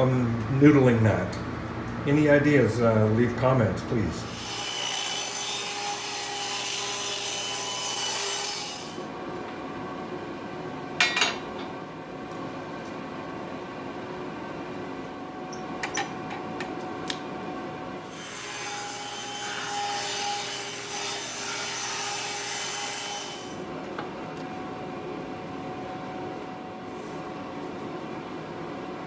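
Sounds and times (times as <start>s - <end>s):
table saw running: 4.2s - 9.0s.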